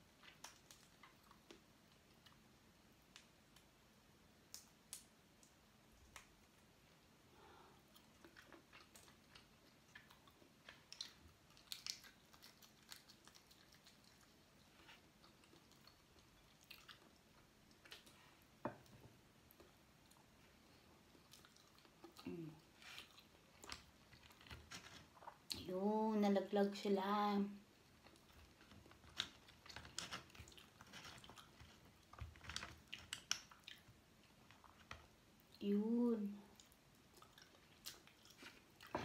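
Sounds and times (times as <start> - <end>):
chewing and eating shellfish: 0.0 - 2.6, 6.0 - 25.6, 27.6 - 35.6, 36.4 - 39.0
wet clicks and smacks: 0.2 - 2.4, 4.4 - 6.6, 8.2 - 14.4, 28.0 - 35.1.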